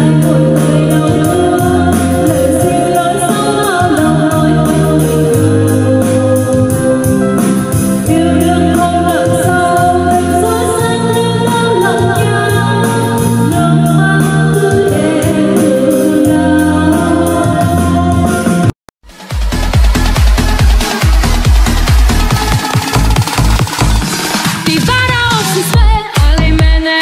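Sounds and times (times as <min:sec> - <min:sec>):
woman singing into microphone: 0:00.0 - 0:18.7, 0:24.6 - 0:27.0
backing track with bass and beat: 0:00.0 - 0:27.0.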